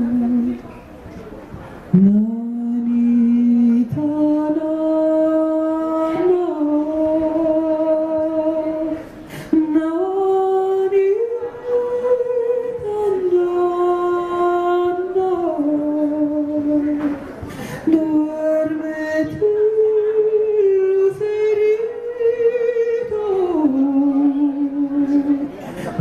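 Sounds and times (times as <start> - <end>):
woman singing unaccompanied: 0.0 - 0.7, 1.9 - 17.2, 17.8 - 25.6.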